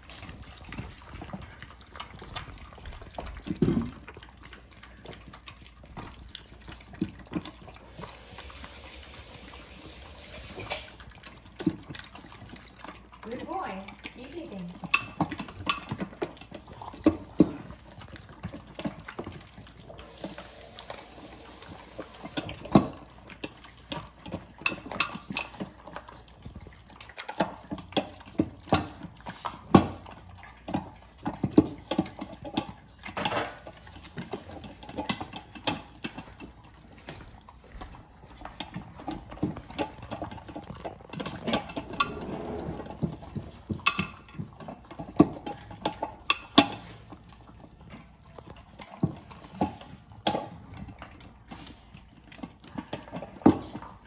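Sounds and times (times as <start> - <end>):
dogs crunching food: 0.0 - 54.0.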